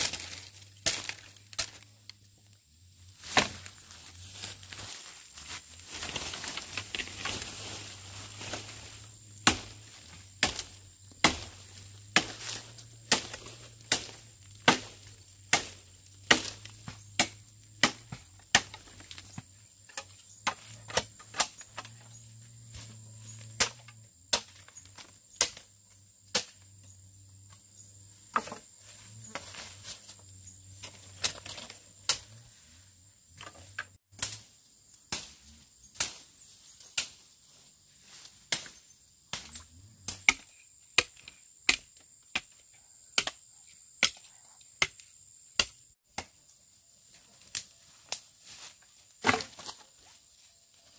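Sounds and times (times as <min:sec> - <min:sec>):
blade chopping wood: 0:00.0 - 0:01.8, 0:09.4 - 0:19.3, 0:38.5 - 0:42.6, 0:45.6 - 0:46.4, 0:49.2 - 0:49.8.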